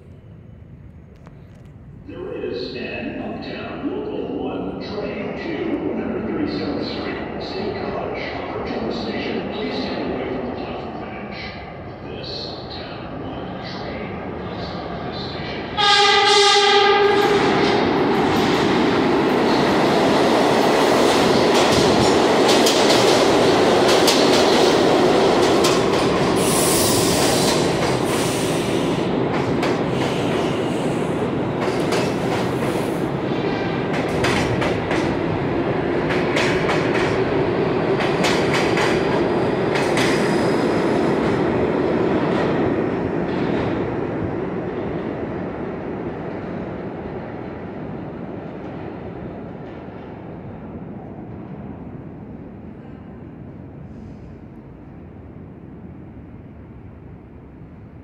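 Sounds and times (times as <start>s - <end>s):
train horn blast: 15.8s - 17.6s
train wheels clattering: 31.6s - 33.0s.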